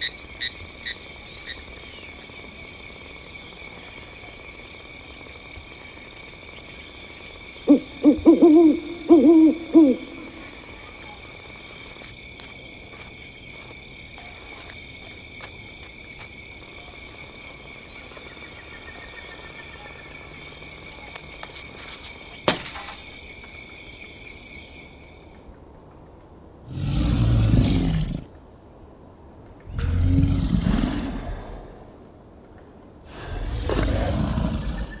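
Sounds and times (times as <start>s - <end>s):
owl hooting: 7.7s - 11.2s.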